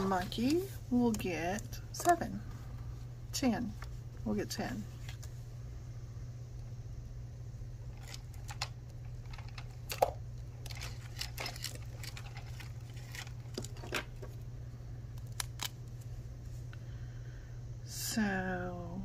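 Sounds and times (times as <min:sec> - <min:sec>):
steady low hum: 0:00.0 - 0:19.0
paper rustling: 0:10.6 - 0:14.4.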